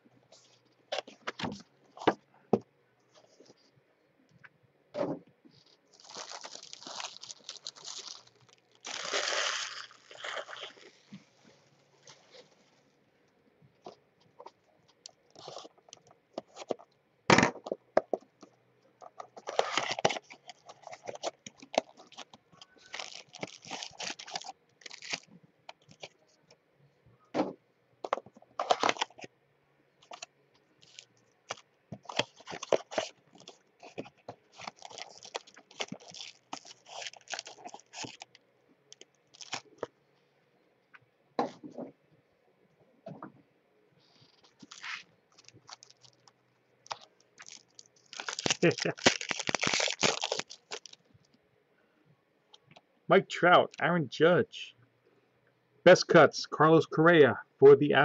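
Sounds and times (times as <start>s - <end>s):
foil packs crinkling: 5.9s - 11.2s, 19.4s - 26.1s, 28.1s - 29.3s, 30.0s - 39.9s, 44.3s - 51.0s
cardboard tearing: 22.8s - 25.3s, 32.1s - 38.2s, 44.6s - 45.0s, 47.4s - 51.0s.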